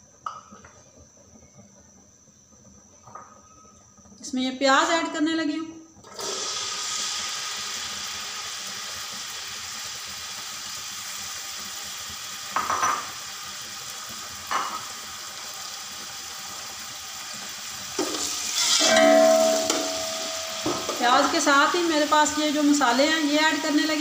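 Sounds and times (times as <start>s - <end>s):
oil hissing in a pot: 6.0s - 24.0s.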